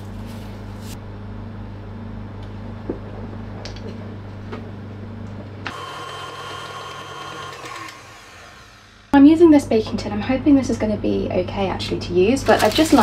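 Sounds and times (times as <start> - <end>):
stand mixer running: 5.6 - 9.1.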